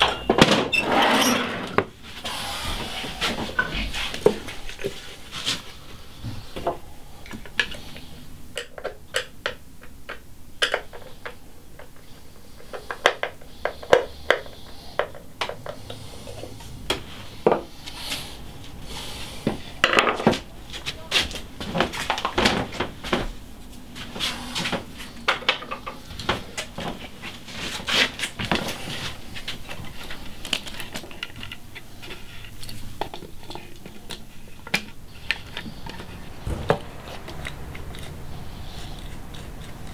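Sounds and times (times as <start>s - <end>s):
hand tool clicks and scrapes: 33.9s - 39.9s.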